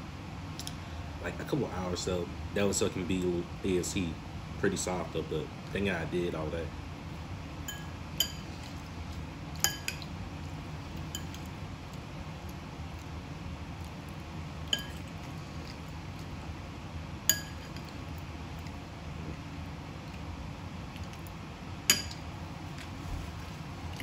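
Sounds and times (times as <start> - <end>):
fork clinking against ceramic bowl: 7.7 - 8.5, 9.6 - 10.1, 11.1 - 11.4, 14.7 - 15.1, 17.3 - 17.9, 21.9 - 22.2.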